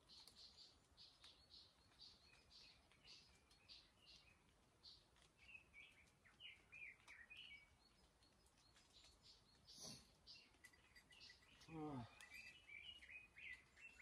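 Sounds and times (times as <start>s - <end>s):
high bird chirps: 9.0s - 14.0s.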